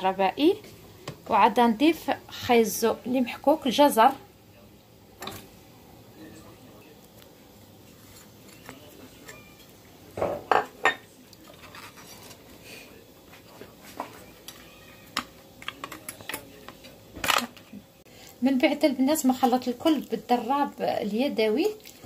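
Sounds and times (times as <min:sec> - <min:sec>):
food scraped from plate: 0:11.5 - 0:12.6.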